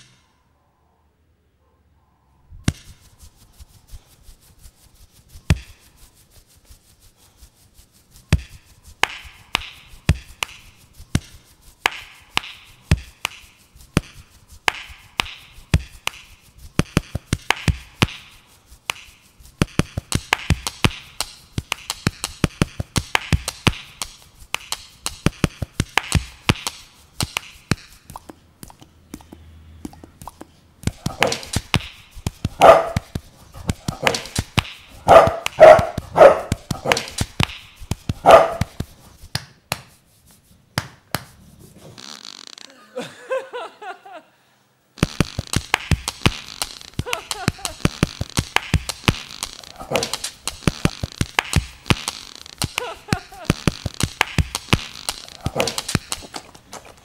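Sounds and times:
percussive beat of clicks: 8.3s - 40.0s, 45.0s - 56.5s.

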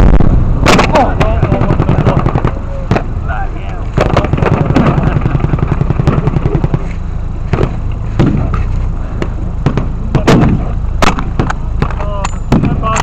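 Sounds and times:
steady low rumble: 0.0s - 13.0s
sharp gunshots: 0.1s - 3.2s, 4.0s - 6.9s, 7.5s - 8.7s, 9.6s - 13.0s
rapid gunfire rattle: 0.7s - 3.1s, 4.0s - 6.9s.

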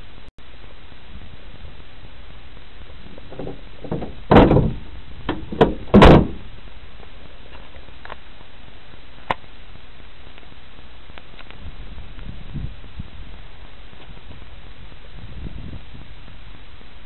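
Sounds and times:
car bonnet thudding shut: 3.3s - 6.5s.

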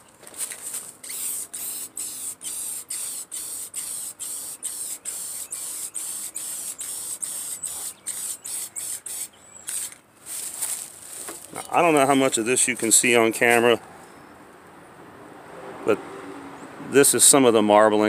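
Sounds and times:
spray paint can hissing: 1.0s - 10.0s.

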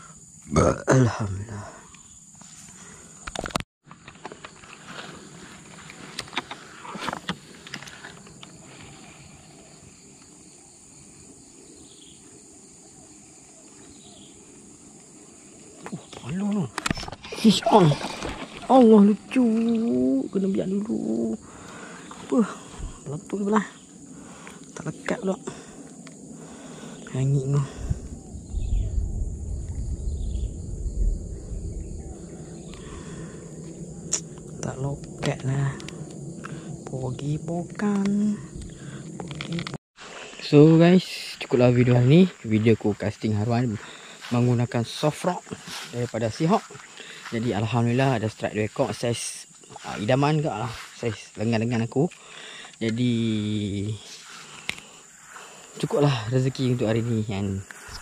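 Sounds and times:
insects droning: 0.0s - 58.0s
low microphone rumble: 26.4s - 39.7s.

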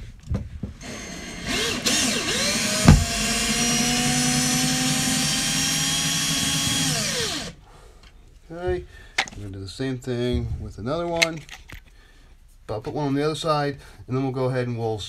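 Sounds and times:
cordless drill driving a screw: 0.8s - 7.6s
sharp knock: 2.8s - 3.2s.

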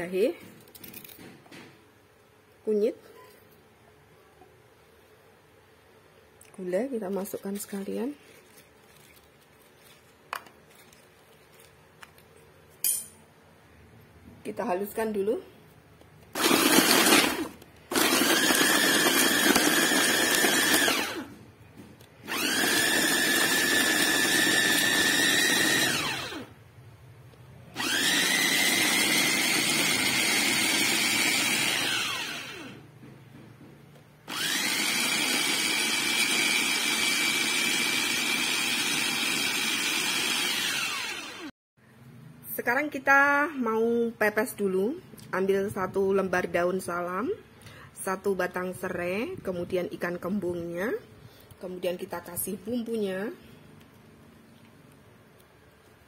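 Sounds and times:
food chopper motor whine: 16.3s - 21.4s, 22.2s - 26.6s, 27.8s - 32.9s, 34.3s - 41.5s.

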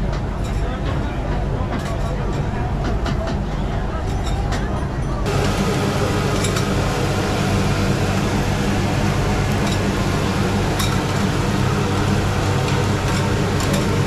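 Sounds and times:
fan-like hum: 0.0s - 14.0s.

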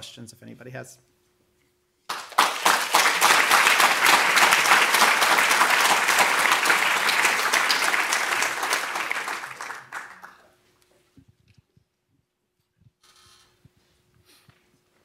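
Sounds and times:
audience applauding: 2.1s - 10.6s.

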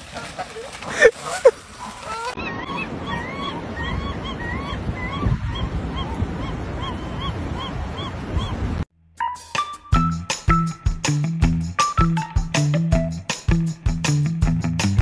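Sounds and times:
gulls squawking: 0.0s - 8.7s.

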